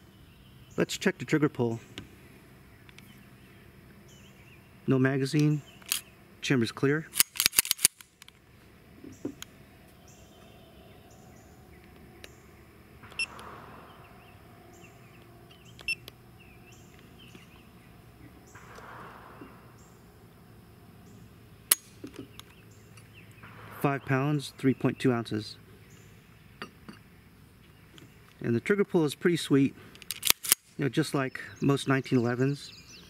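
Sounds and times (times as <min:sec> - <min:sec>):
pistol hammer snapping down: 0:07.2 - 0:08.3.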